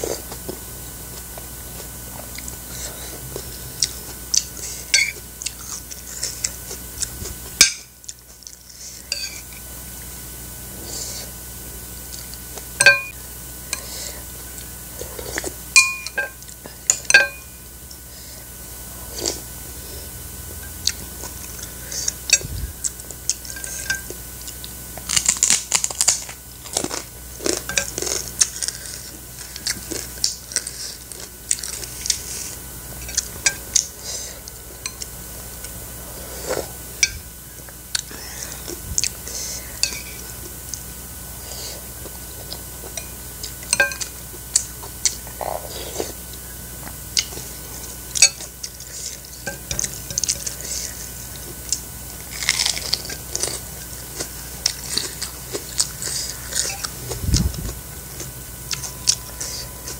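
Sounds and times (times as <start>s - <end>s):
chewing: 0.0s - 7.4s, 20.8s - 36.8s, 41.4s - 59.9s
spoon clinking on ceramic bowl: 12.8s - 13.1s.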